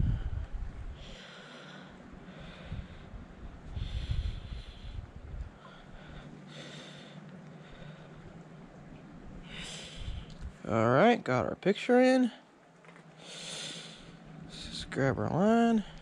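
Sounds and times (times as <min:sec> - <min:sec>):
person breathing through nose: 0:00.2 - 0:08.2, 0:09.4 - 0:10.4, 0:13.2 - 0:14.2.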